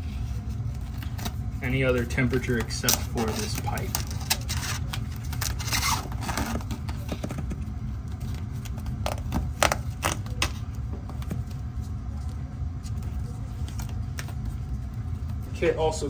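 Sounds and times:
steady low rumble: 6.5 - 16.0.

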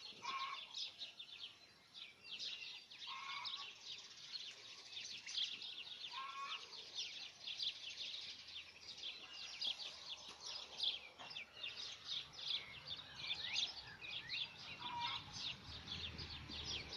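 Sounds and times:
low bird calls: 0.0 - 1.0, 2.7 - 3.8, 5.4 - 7.2, 9.1 - 16.9
small birds chirping: 0.0 - 16.9.

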